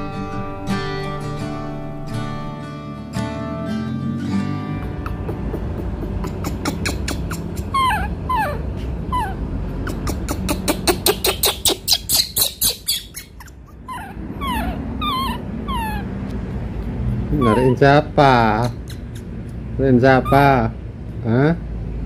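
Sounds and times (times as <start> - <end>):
baby macaque squeaking: 6.2 - 16.3, 17.2 - 20.8.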